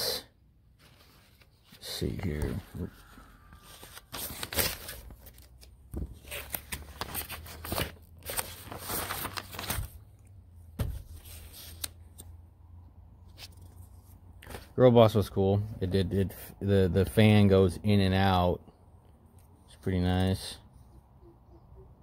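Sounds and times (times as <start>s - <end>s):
paper pages rustling: 0.8s - 12.3s.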